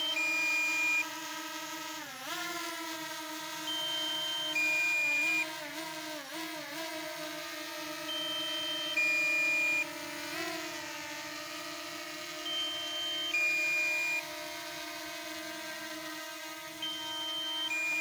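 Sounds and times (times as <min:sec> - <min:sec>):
drone propellers humming: 0:00.0 - 0:18.0
electronic two-tone beep: 0:16.8 - 0:18.0.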